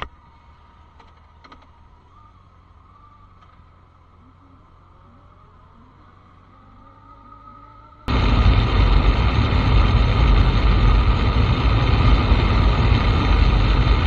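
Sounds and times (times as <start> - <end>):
motorcycle engine running: 8.1 - 14.0
wind noise on microphone: 8.1 - 14.0.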